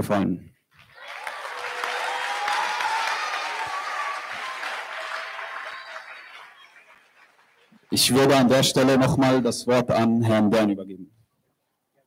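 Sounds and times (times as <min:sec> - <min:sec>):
audience applauding: 0:00.8 - 0:08.8.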